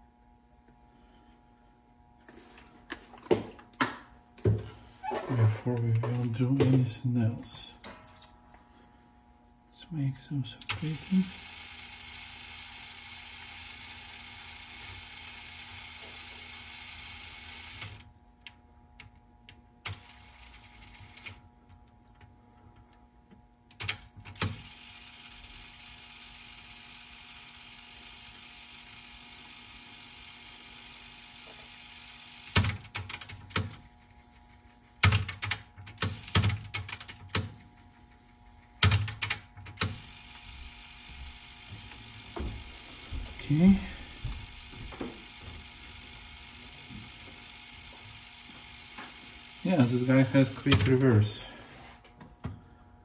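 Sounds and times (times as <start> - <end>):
cassette tape transport whirring: 10.6 - 18.6, 19.5 - 21.9, 23.7 - 51.3.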